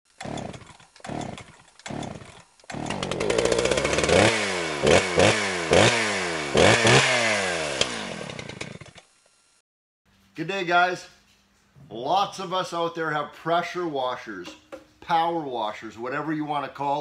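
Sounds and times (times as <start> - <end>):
chainsaw pull-start cranking: 0.1 - 9.5
chainsaw engine revving: 0.1 - 9.6.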